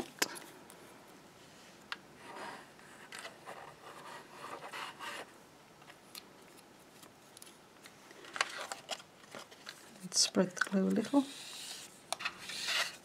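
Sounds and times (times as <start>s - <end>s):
paper rustle: 6.5s - 13.0s.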